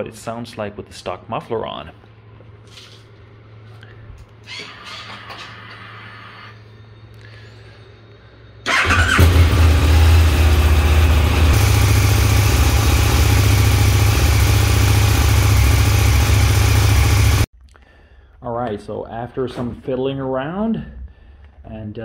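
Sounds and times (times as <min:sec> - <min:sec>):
motorcycle engine cranking: 0:08.7 - 0:10.4
motorcycle engine idling loudly: 0:08.7 - 0:17.5.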